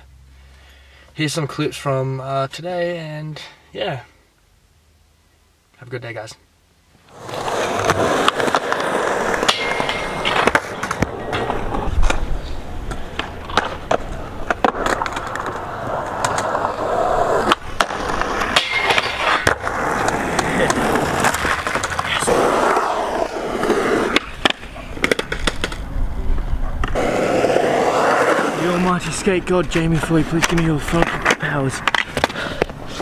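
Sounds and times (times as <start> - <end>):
skateboard wheels rolling on concrete: 6.9 - 33.0
skateboard clacks popping and landing: 7.1 - 12.2, 12.8 - 25.8, 30.3 - 32.8.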